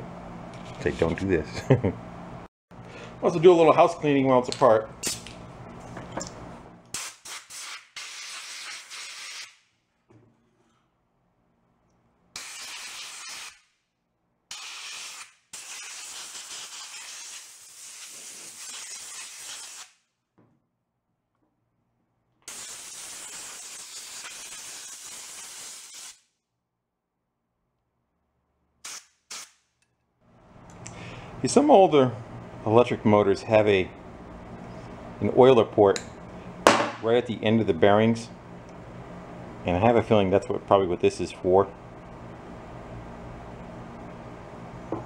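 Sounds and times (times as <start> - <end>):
compressed air hissing: 14.5 - 19.9, 22.5 - 26.2.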